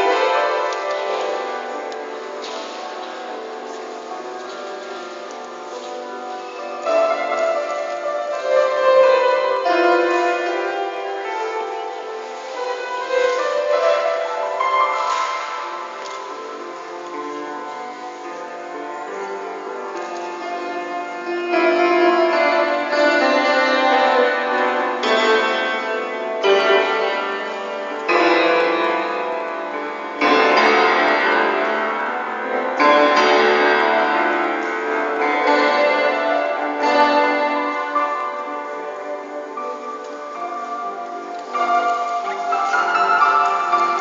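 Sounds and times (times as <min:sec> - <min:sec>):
grand piano chords: 0:00.0 - 0:44.0.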